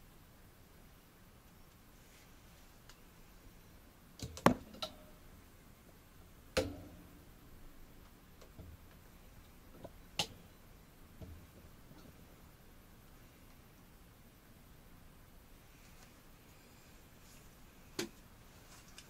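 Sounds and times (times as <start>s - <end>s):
sharp clicks and knocks: 4.2s - 5.0s.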